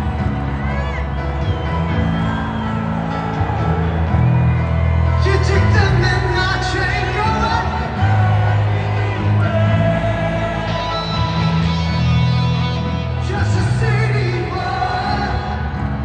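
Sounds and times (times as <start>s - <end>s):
live rock band: 0.0s - 16.0s
person singing: 5.2s - 16.0s.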